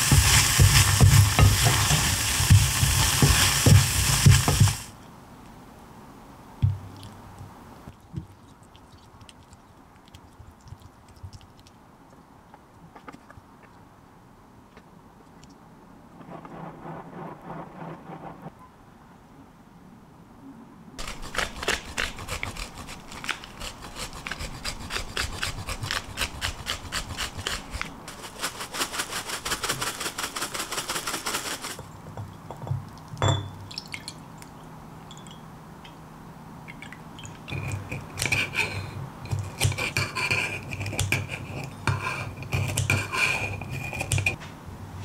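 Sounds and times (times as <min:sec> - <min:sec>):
scissors cutting crisp tortilla: 0:21.0 - 0:28.0
dry rasping grinding: 0:21.0 - 0:29.5, 0:37.5 - 0:44.4.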